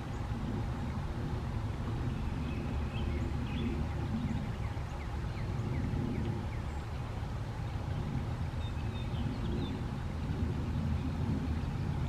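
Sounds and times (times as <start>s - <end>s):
songbirds chirping: 0.0s - 12.0s
steady low rumble: 0.0s - 12.0s.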